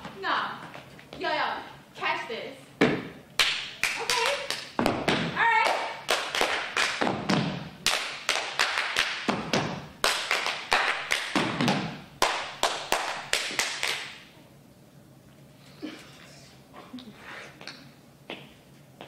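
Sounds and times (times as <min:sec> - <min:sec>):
faint room noise: 0:00.0 - 0:19.0
hands clapping: 0:03.4 - 0:04.8, 0:05.6 - 0:07.1, 0:07.8 - 0:14.2
feet stomping on stage floor: 0:04.8 - 0:05.4, 0:07.0 - 0:07.7.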